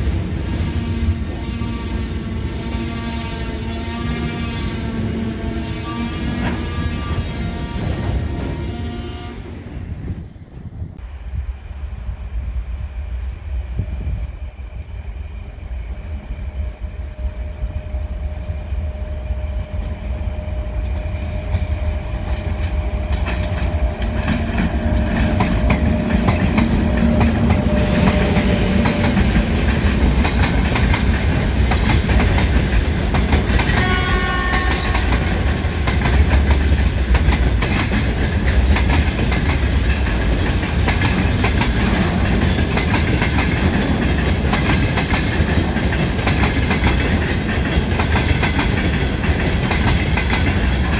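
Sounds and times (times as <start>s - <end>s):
freight train rumbling past: 0.0s - 50.9s.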